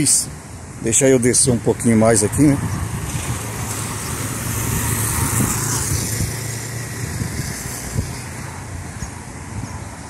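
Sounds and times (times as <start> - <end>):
wind rumble on microphone: 0.0 - 10.0
car passing by: 2.5 - 10.0.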